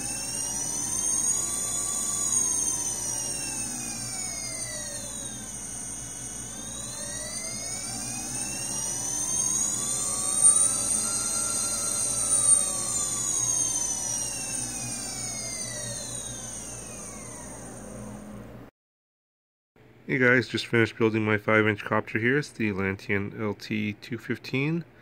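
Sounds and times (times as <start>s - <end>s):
steady high tone: 0.0s - 18.5s
electric motors whining: 0.0s - 18.7s.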